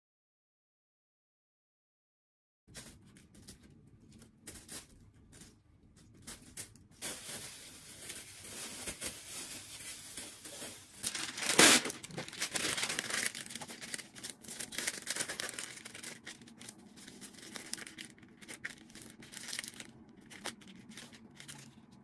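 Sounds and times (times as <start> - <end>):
paper rustling: 2.7 - 22.0
plastic bag crinkling: 2.7 - 22.0
paper tearing: 10.4 - 21.7.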